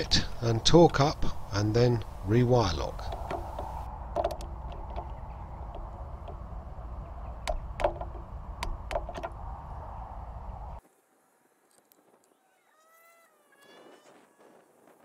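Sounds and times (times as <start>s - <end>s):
low rumble: 0.0s - 10.8s.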